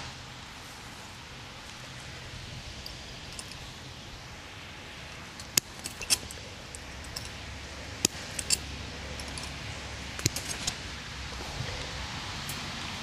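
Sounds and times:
faint outdoor hiss: 0:00.0 - 0:13.0
metal tool clicking on wire: 0:05.4 - 0:09.6, 0:10.2 - 0:10.8.

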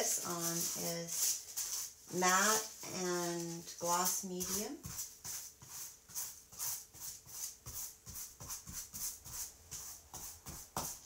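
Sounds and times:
paintbrush scrubbing on paper: 0:00.0 - 0:11.0.

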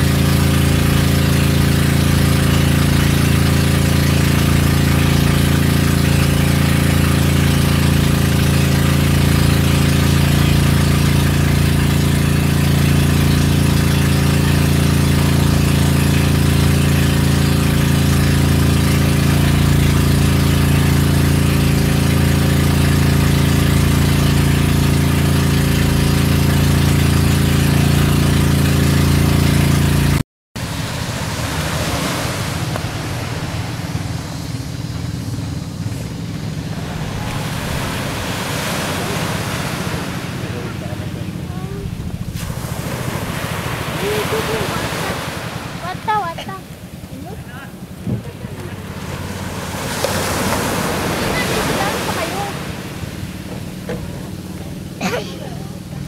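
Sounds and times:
boat engine drone: 0:00.0 - 0:56.0
wind and water hiss: 0:30.6 - 0:55.3.

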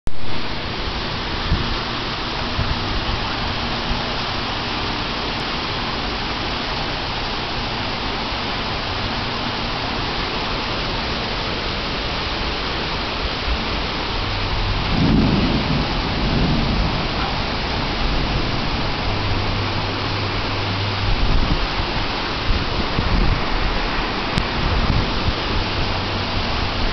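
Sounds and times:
heavy rain pouring: 0:00.1 - 0:26.9
low rumble: 0:14.1 - 0:26.9.

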